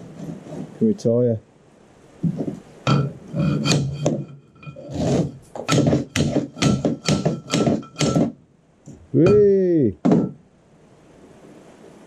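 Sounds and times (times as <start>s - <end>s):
metal taps ringing: 2.9s - 4.9s, 5.6s - 8.4s, 9.2s - 10.4s.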